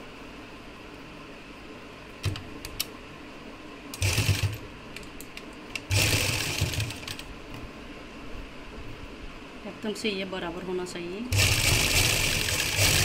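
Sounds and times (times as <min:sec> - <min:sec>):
sewing machine stitching: 0:04.0 - 0:04.6, 0:05.9 - 0:07.3, 0:11.3 - 0:13.0.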